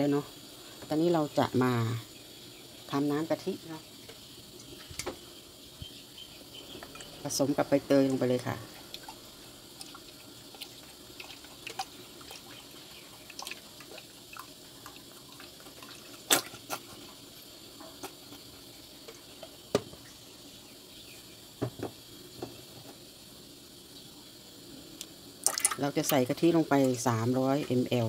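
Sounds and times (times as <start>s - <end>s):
water splashing in steel bowl: 6.7s - 17.3s, 25.4s - 28.0s.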